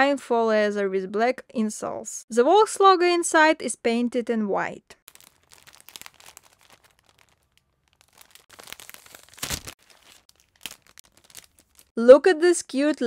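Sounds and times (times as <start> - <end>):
plastic bag crinkling: 5.1 - 12.0.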